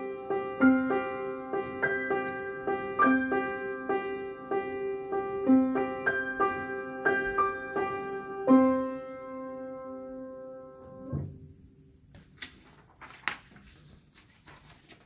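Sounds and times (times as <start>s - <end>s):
upright piano playing: 0.0s - 11.4s
faint clicks and rustles: 12.1s - 15.0s.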